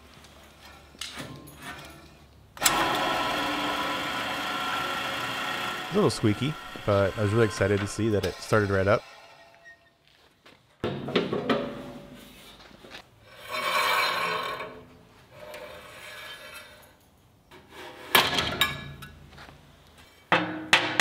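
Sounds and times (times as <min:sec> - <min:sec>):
band saw wheel whirring: 0:02.6 - 0:10.0.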